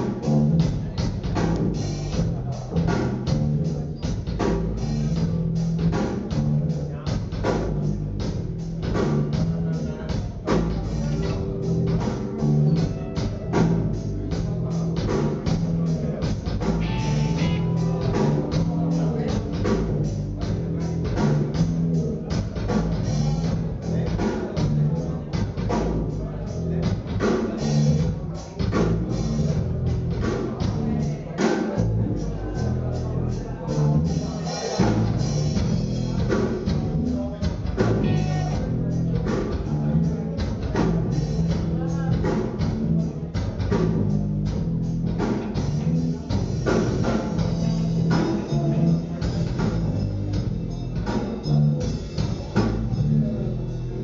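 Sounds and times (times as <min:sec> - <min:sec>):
bass guitar line: 0:00.0 - 0:54.0
drum kit steady beat: 0:00.0 - 0:54.0
electric guitar: 0:16.6 - 0:18.7.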